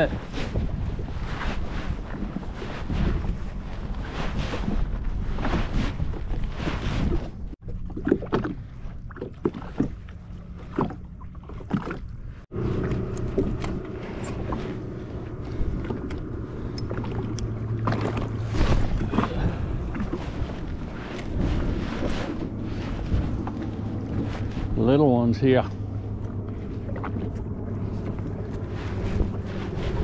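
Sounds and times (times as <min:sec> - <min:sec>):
water lapping and splashing: 0:00.0 - 0:30.0
jet ski engine idling: 0:12.5 - 0:20.2.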